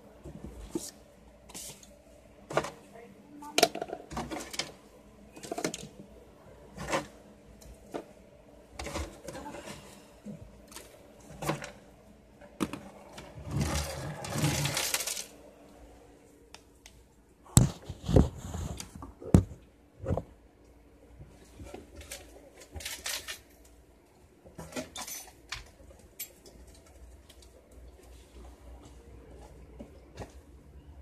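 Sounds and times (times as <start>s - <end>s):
scraping in drawer: 13.3s - 15.2s.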